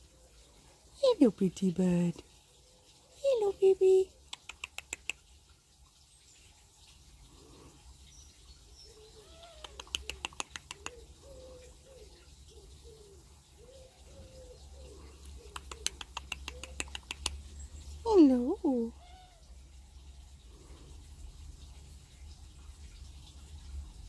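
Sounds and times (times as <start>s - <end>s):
pigeon cooing: 8.9s - 17.4s.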